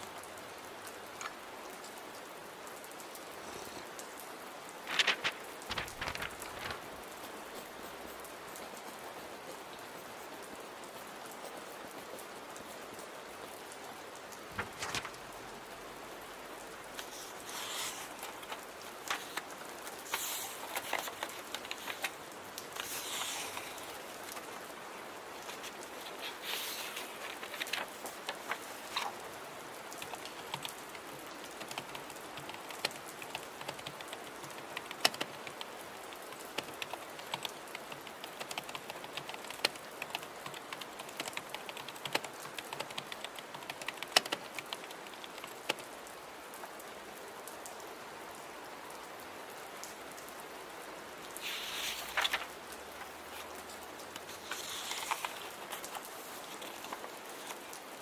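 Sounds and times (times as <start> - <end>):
steady rain: 0.0 - 58.0
paper rustling: 4.8 - 8.0, 14.4 - 15.6, 16.8 - 35.7, 51.3 - 58.0
keyboard typing: 17.0 - 24.5, 29.9 - 45.8, 54.2 - 57.6.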